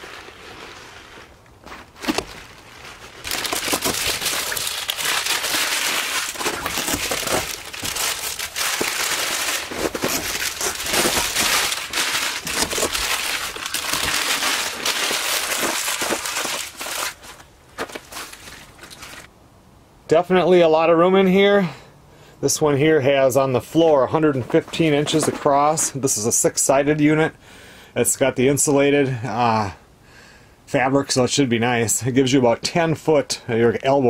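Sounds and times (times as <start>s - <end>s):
packaging crinkling: 0.0s - 19.3s.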